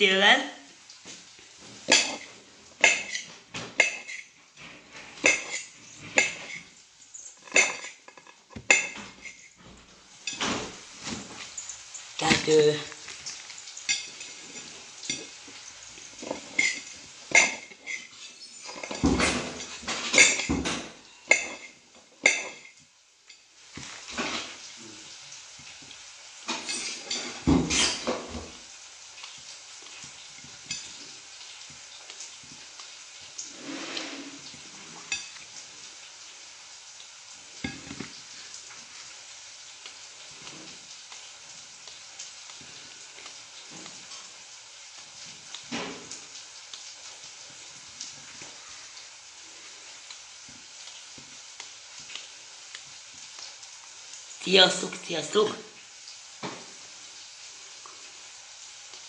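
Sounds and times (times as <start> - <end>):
frying sizzle: 0.0 - 59.0.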